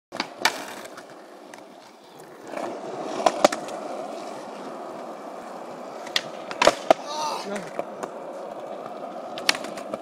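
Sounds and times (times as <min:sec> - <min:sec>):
skateboard clacking: 0:00.1 - 0:10.0
skateboard wheels rolling on concrete: 0:00.1 - 0:10.0.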